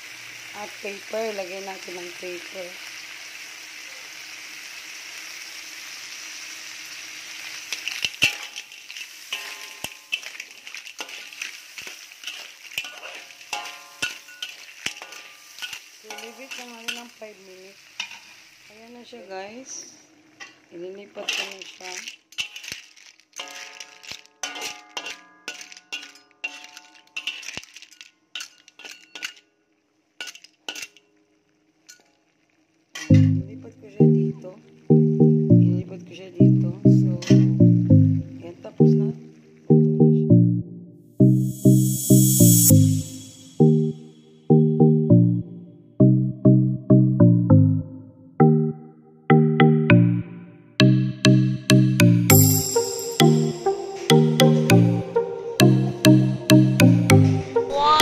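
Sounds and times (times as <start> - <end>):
clams sizzling in a wok: 0.0 - 35.1, 38.2 - 39.7, 41.6 - 44.4, 52.3 - 54.1
metal clinks against wok: 8.1 - 10.4, 12.2 - 17.0, 23.4 - 29.5
clam shells clinking: 21.4 - 29.5.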